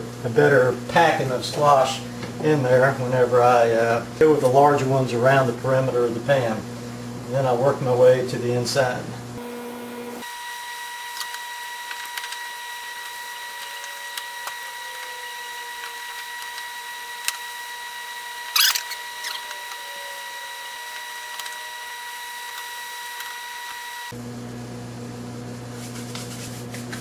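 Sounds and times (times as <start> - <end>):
high-pitched whine: 10.2 - 24.2.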